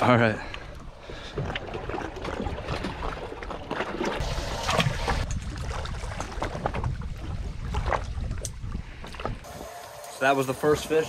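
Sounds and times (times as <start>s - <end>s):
water lapping against hull: 0.0s - 9.9s
wind rumbling on microphone: 4.2s - 9.7s.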